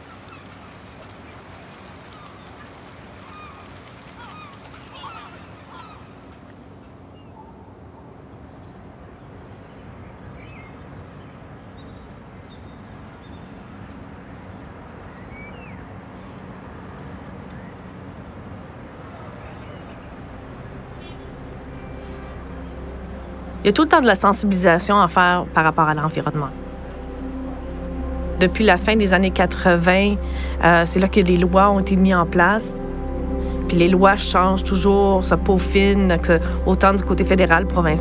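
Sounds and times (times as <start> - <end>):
birds calling: 0.0 - 7.5, 8.8 - 28.2
low rumble with faint hum: 15.3 - 38.0.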